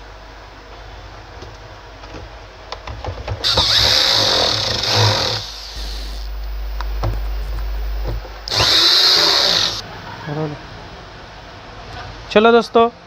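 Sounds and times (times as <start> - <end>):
cordless drill driving screws: 3.4 - 6.3, 8.5 - 9.8
low hum: 3.4 - 10.0.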